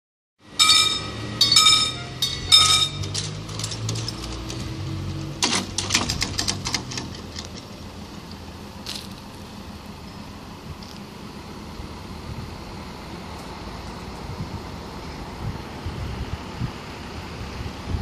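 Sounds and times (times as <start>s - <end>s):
level-crossing warning bell: 0.5s - 4.1s
low hum: 0.5s - 5.4s
barrier booms clicking and rattling: 1.4s - 7.7s.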